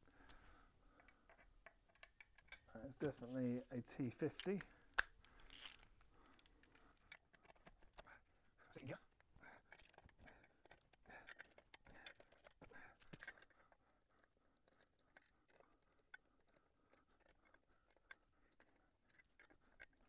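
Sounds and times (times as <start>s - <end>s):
hand tool clicking and scraping: 0.3s - 20.0s.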